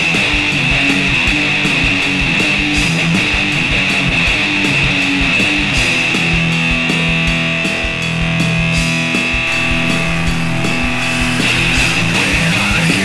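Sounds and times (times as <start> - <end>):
steady drum beat: 0.0 - 13.0
electric guitar sustained notes: 9.5 - 13.0.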